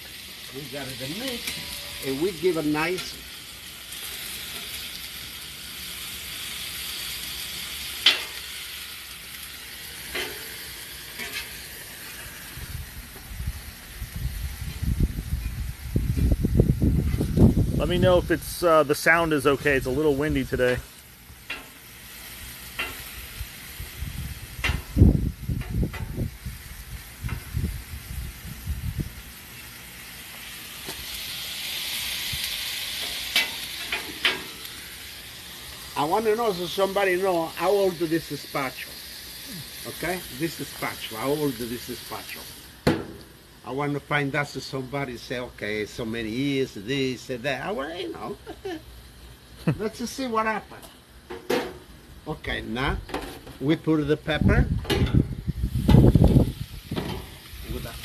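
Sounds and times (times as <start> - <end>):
meat and onions sizzling on griddle: 0.0 - 58.0
metal spatula clacking on griddle: 8.0 - 8.4, 21.4 - 21.8, 22.8 - 23.1, 24.6 - 25.0, 33.0 - 34.5
wind rumble on microphone: 12.6 - 18.5, 23.8 - 29.3, 54.3 - 58.0.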